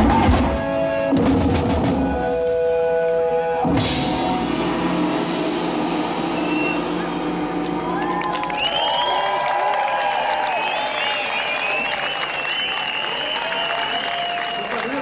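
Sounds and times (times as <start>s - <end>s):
drum kit: 0.0s - 2.8s, 3.6s - 9.4s
live band music: 0.0s - 8.5s
hissing cymbal crash: 3.9s - 7.4s.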